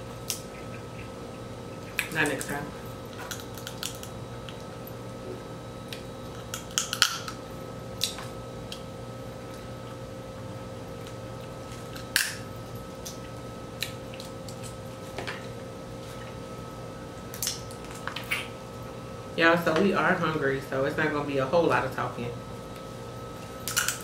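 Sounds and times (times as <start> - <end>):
steady electrical hum: 0.0 - 24.0
seafood shells cracking: 1.8 - 4.7, 5.9 - 7.4, 11.1 - 14.8, 17.3 - 18.5, 23.6 - 24.0.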